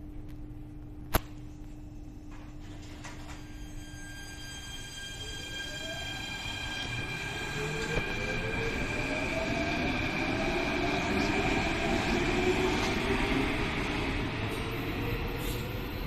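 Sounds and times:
electric train motors whining: 3.0 - 13.3.

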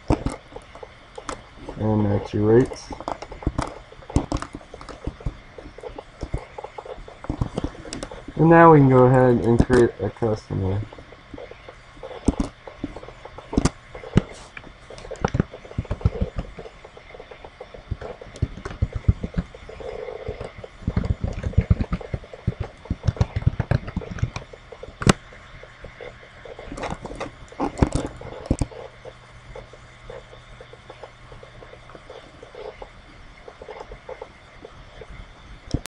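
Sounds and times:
faint low steady hum: 0.0 - 35.9.

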